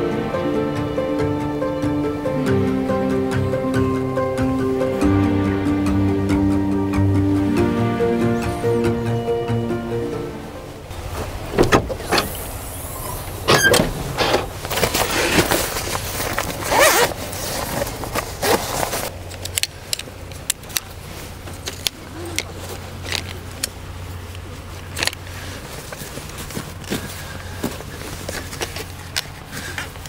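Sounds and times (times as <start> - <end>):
rustling and scraping: 13.2 - 30.0.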